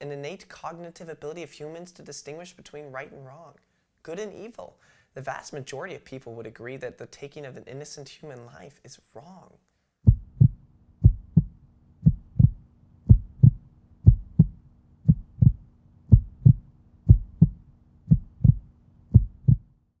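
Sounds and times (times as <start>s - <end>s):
heartbeat double thump: 10.1s - 19.7s
faint low hum: 10.1s - 19.9s.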